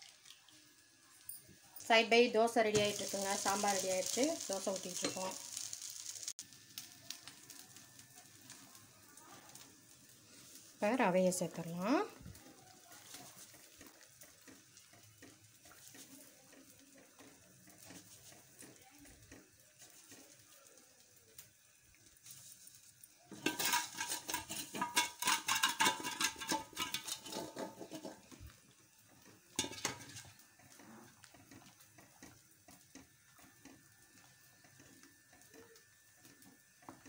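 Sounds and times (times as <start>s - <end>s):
wooden spatula scraping pot: 13.2s - 20.2s, 22.2s - 28.5s, 29.2s - 35.6s.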